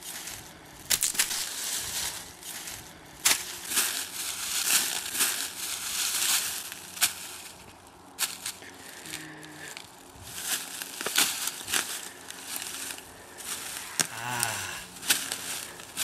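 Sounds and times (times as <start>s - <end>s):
dry leaves crunching underfoot: 0.0s - 16.0s
twigs snapping: 0.8s - 1.5s, 10.6s - 16.0s.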